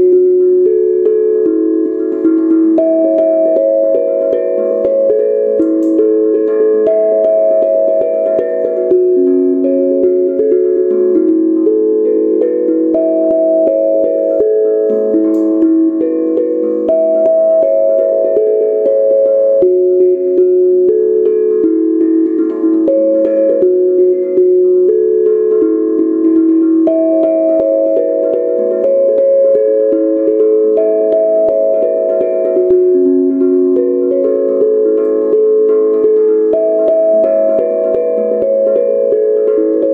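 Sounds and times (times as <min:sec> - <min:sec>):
steel tongue drum notes: 0:00.0 - 0:39.9.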